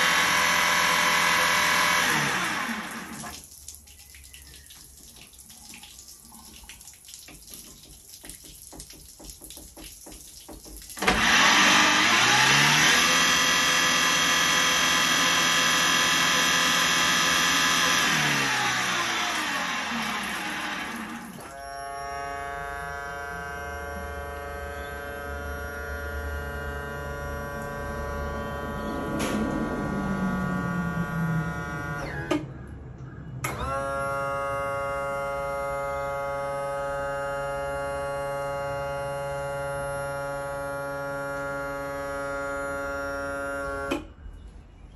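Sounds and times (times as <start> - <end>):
electric tilt motor whining: 0.0 - 3.3, 11.0 - 32.5, 33.4 - 44.1
motor stopping click: 11.0 - 21.6.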